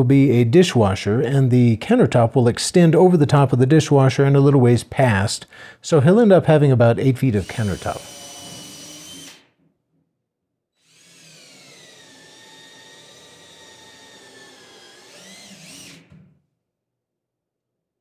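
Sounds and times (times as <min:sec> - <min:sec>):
cordless drill boring into wood: 0:07.4 - 0:09.5, 0:10.8 - 0:16.2.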